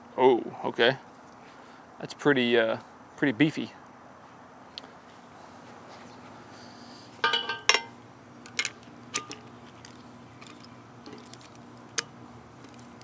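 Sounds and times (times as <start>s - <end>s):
ringing metal clanks: 7.2s - 7.9s.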